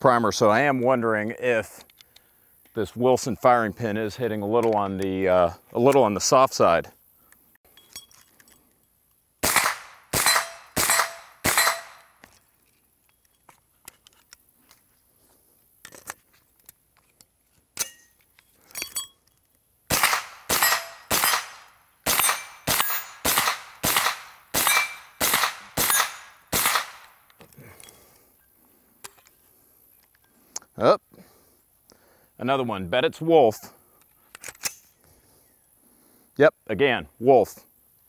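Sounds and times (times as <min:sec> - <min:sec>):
carbine gunshots: 0:09.4 - 0:12.1, 0:19.9 - 0:27.2.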